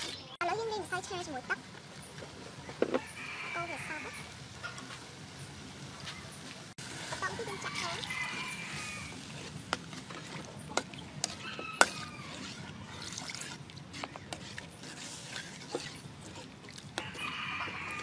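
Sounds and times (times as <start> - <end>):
chickens calling: 7.2 - 9.6, 10.5 - 13.1, 16.2 - 18.0.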